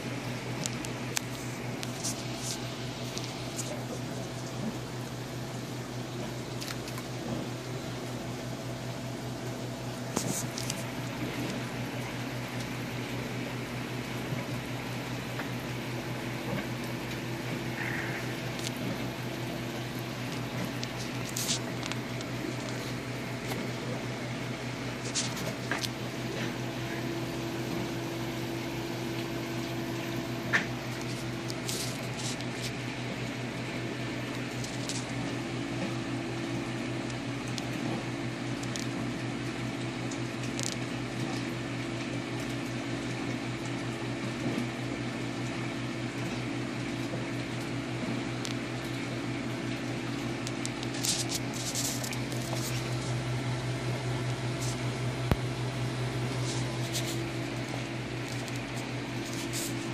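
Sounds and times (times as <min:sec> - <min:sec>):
low mechanical hum: 0:00.0 - 0:59.9.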